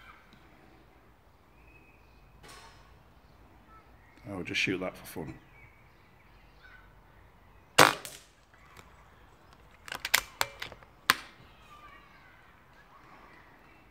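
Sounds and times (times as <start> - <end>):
air rifle shot: 7.8 - 8.3
sharp clicks: 7.8 - 11.4
small crack: 7.8 - 11.4.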